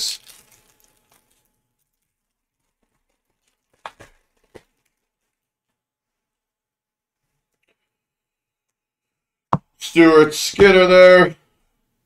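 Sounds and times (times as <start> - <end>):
foil crackles: 0.0 - 5.7
foil wrapper crinkling: 0.0 - 5.8.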